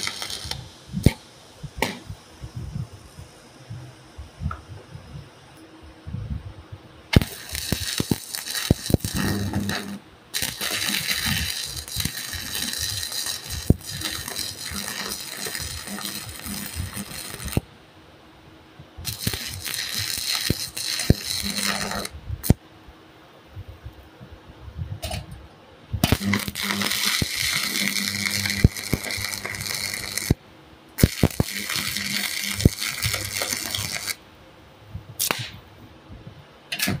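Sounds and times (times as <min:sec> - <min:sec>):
welding arc crackling and sizzling: 0:00.0 - 0:04.8, 0:07.1 - 0:17.7, 0:19.0 - 0:22.6, 0:26.0 - 0:34.2, 0:35.1 - 0:35.6
sharp pops of arc striking: 0:01.8 - 0:02.1, 0:07.1 - 0:17.6, 0:26.0 - 0:30.4, 0:35.2 - 0:35.6, 0:36.7 - 0:37.0.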